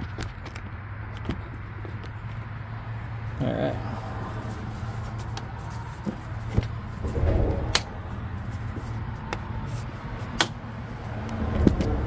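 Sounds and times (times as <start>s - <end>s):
steady low hum: 6.3s - 9.7s.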